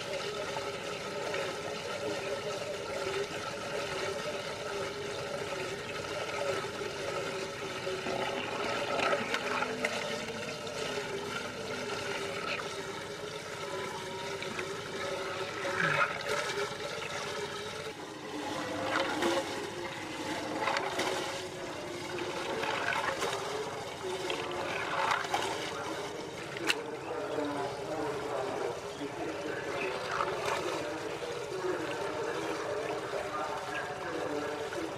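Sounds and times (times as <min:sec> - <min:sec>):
faint wavering hum: 0:00.0 - 0:34.9
water splashes: 0:00.0 - 0:34.9
water swirling and draining: 0:00.0 - 0:34.9.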